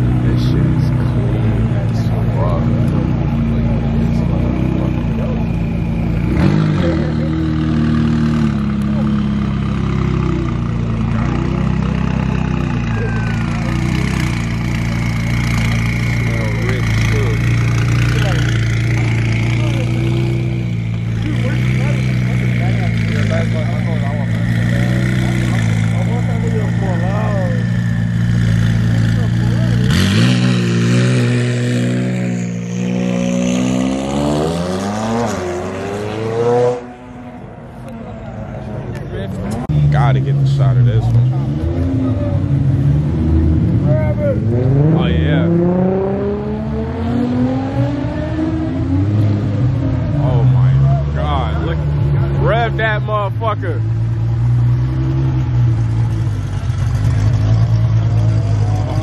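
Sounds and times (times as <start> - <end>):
people chatting: 0.0 - 5.8, 6.6 - 7.7, 10.8 - 30.2, 37.8 - 42.6, 43.8 - 45.7, 50.0 - 53.9
car engine idling: 0.0 - 30.1, 49.4 - 59.0.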